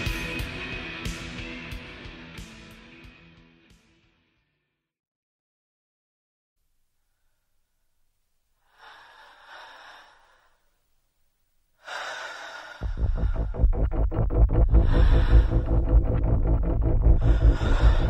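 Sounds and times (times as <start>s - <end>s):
soft breath-like hiss: 8.6s - 10.8s
fast heavy low pulsing: 12.8s - 18.0s
song with noisy swell: 12.8s - 18.0s.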